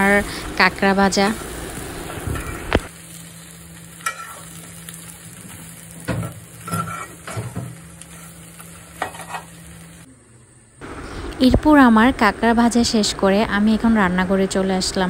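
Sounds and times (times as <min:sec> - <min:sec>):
crab sizzling in a wok: 0:00.0 - 0:11.4
spoon scraping and knocking on wok: 0:04.0 - 0:04.5, 0:06.0 - 0:08.3, 0:08.9 - 0:09.5.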